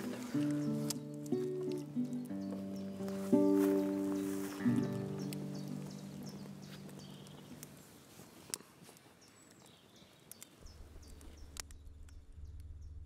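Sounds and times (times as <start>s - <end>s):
music chord: 0.0s - 7.6s
small birds chirping: 0.0s - 13.0s
sharp clicks: 8.5s - 12.7s.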